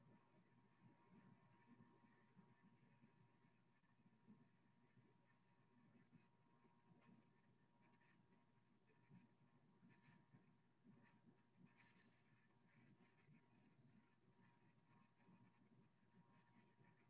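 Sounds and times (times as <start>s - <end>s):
faint scratchy rustles: 0.0s - 17.0s.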